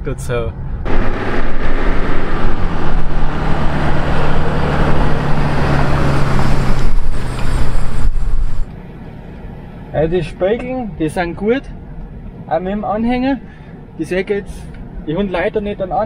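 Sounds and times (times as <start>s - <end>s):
tyre and road noise: 0.0s - 16.0s
low engine hum: 0.5s - 11.0s.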